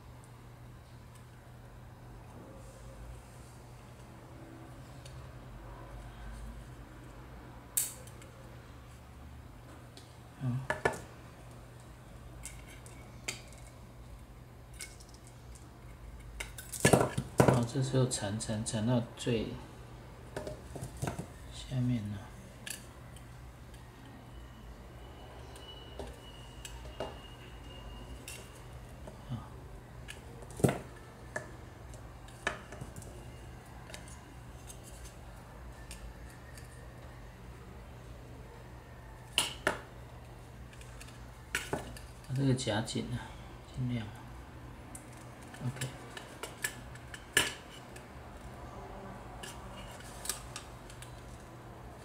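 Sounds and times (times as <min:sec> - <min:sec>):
pliers and wire clicking: 0:07.8 - 0:08.3, 0:44.9 - 0:48.5
wire and pliers clicking: 0:07.8 - 0:08.3.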